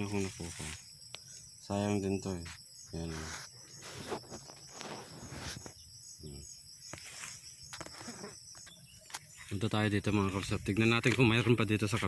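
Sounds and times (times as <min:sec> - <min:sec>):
insects chirping: 0:00.0 - 0:12.0.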